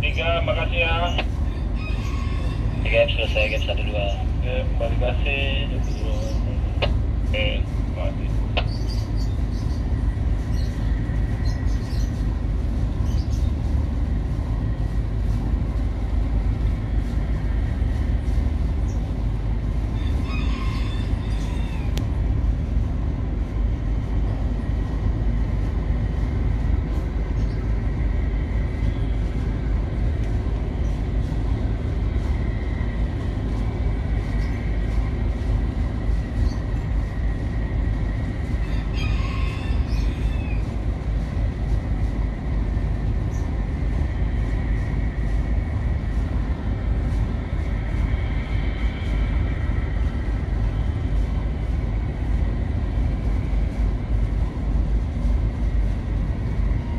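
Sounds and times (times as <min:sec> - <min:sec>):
faint steady whine: 0:00.0 - 0:20.3
engine and machinery rumble: 0:00.0 - 0:56.9.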